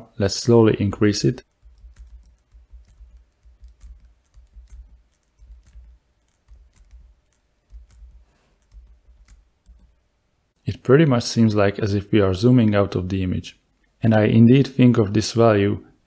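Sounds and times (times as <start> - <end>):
soft keyboard keystrokes: 0.4 - 10.0.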